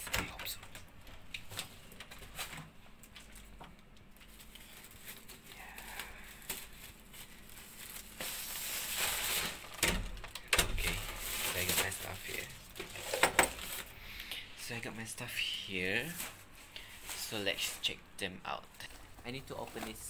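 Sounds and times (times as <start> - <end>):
bag rustling and crinkling: 1.4 - 14.0, 15.9 - 18.0, 18.6 - 20.0.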